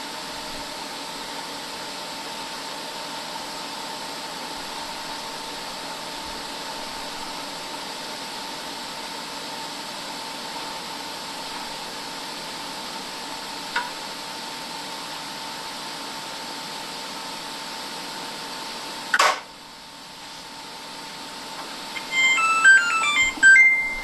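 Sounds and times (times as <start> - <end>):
steady hum: 21.6 - 24.0
washing machine beep melody: 22.0 - 24.0.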